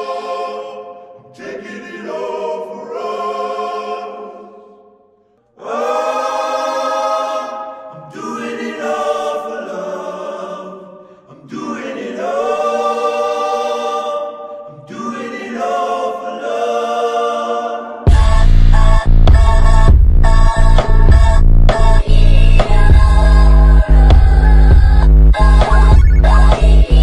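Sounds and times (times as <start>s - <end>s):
choir singing held chords: 0.0s - 27.0s
heavy electronic bass beat: 18.1s - 27.0s.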